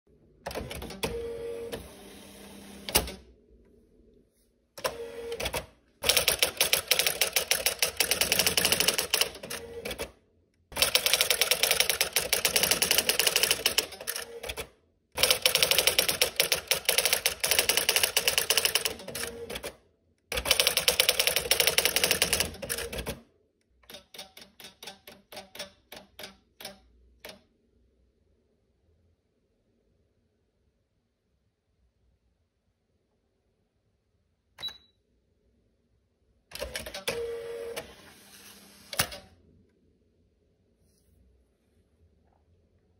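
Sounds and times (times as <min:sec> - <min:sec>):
typewriter printing rapid strikes: 0:05.3 - 0:10.1, 0:10.8 - 0:14.6, 0:15.2 - 0:19.7, 0:20.4 - 0:23.2, 0:23.8 - 0:26.8.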